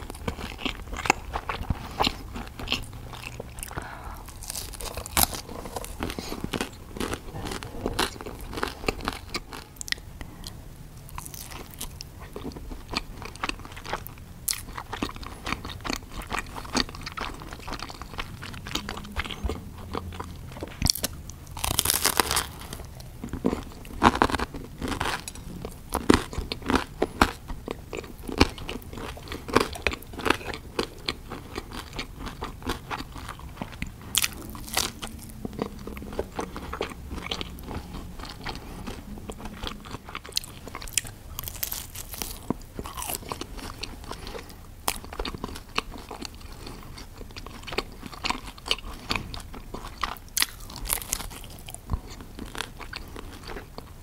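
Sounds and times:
crunchy bites and chewing: 0.0s - 54.0s.

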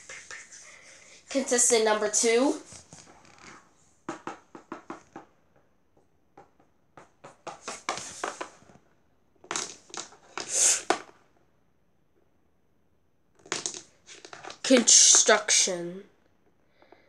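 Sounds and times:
plastic toys clicking on wooden floor: 9.4s - 11.2s, 13.4s - 15.4s.

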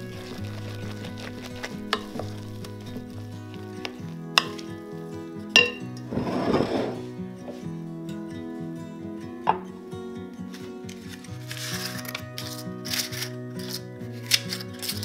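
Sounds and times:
utensil stirring and clinking on pan: 0.0s - 4.7s, 5.5s - 6.9s
soft background music: 0.0s - 15.0s.

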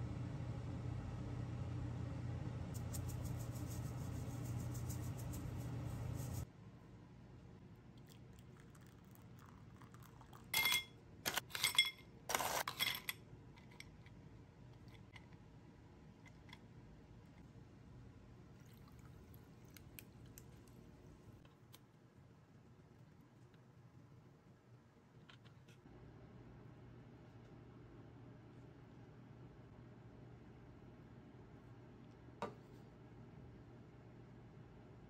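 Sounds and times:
ice cubes clinking in glass: 10.0s - 13.1s.

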